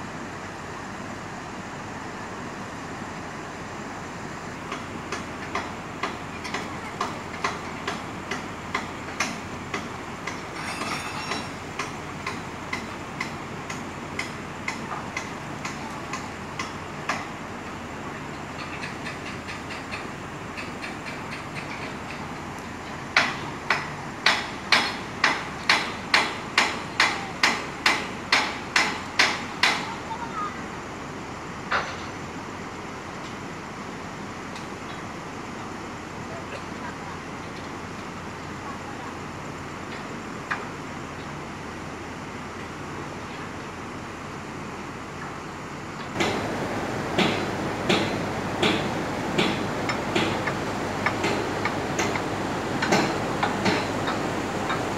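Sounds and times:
hammer striking steel: 10.5s - 12.0s, 47.2s - 52.2s.

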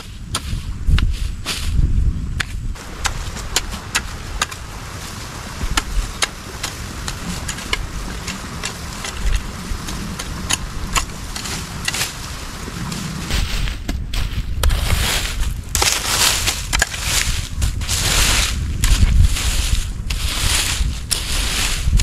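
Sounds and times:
hoe chopping in dry soil: 0.0s - 1.8s, 2.4s - 22.0s
wind rumble on microphone: 0.0s - 22.0s.

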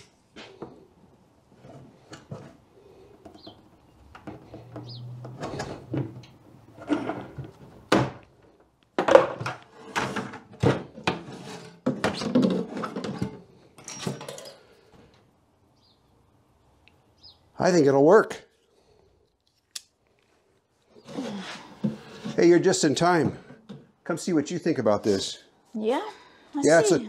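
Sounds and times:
bucket and tools clattering: 9.0s - 14.8s, 21.1s - 24.0s.

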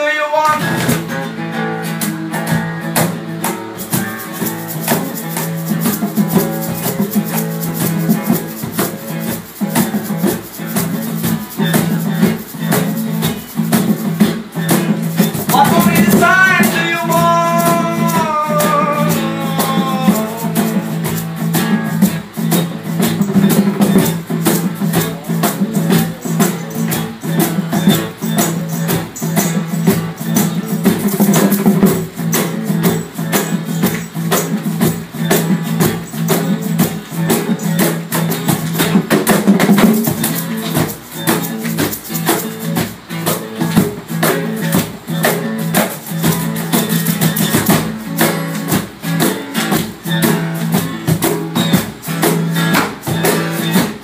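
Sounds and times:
person singing: 0.0s - 1.0s, 15.5s - 21.2s
acoustic guitar strumming: 0.0s - 54.0s
fast rattling percussion: 0.5s - 54.0s.

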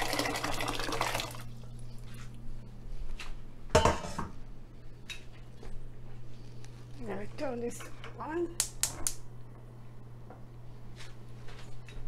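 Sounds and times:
water and peas pouring into pot: 0.0s - 1.5s
kitchenware knock: 3.7s - 4.3s.

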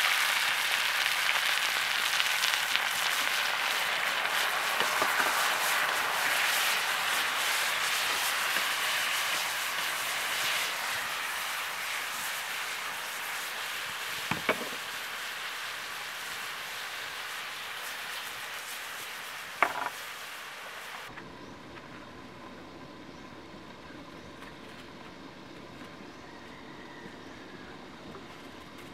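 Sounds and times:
meat sizzling in a wok: 0.0s - 21.2s.

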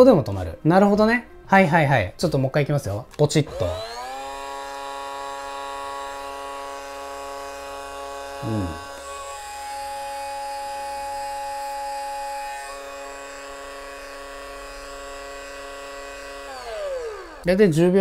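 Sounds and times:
electric coffee grinder whining: 3.5s - 17.7s.

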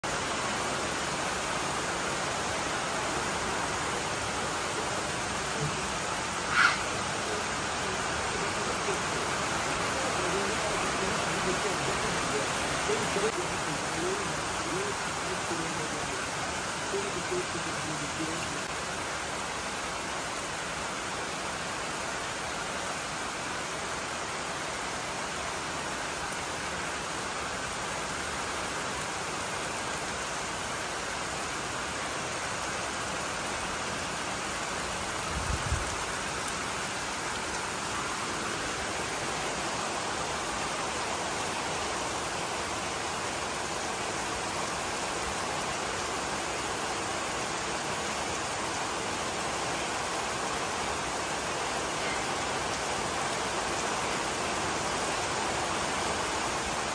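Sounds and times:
rain falling on vegetation: 0.0s - 56.9s.

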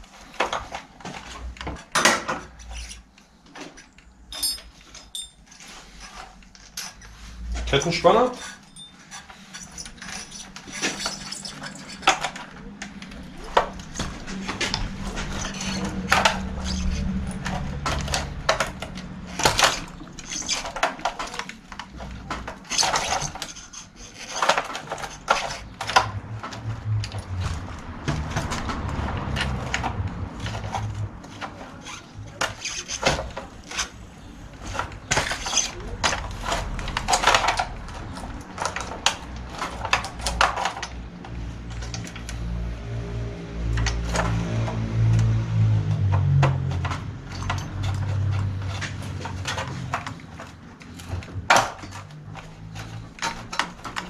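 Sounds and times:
small metal parts clinking: 3.7s - 27.3s.

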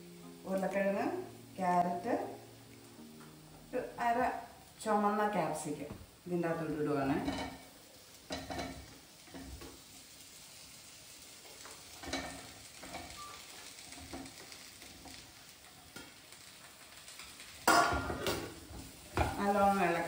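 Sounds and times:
vegetables sizzling in oil: 0.0s - 20.0s
vegetable pieces knocking in pan: 11.5s - 19.6s.

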